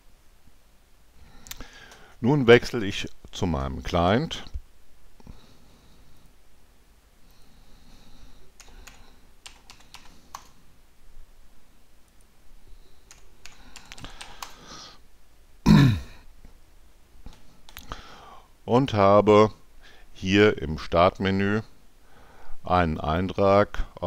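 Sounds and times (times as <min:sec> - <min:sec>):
keyboard typing: 0:08.6 - 0:10.6, 0:13.0 - 0:14.6.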